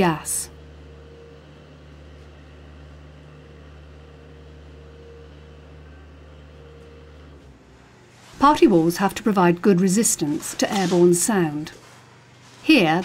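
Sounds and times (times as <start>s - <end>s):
faint higher tone: 2.2s - 7.0s.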